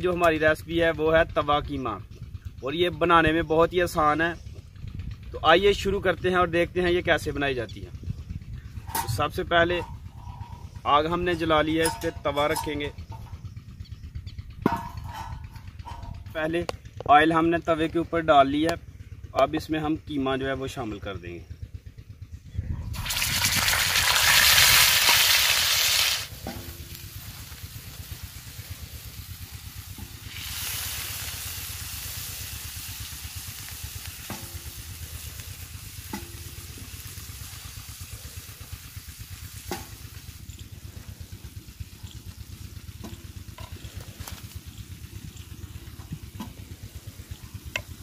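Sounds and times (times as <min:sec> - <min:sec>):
meat sizzling in hot oil: 0:23.0 - 0:40.4
wooden spoon tapping griddle: 0:36.1 - 0:36.6, 0:47.3 - 0:48.0.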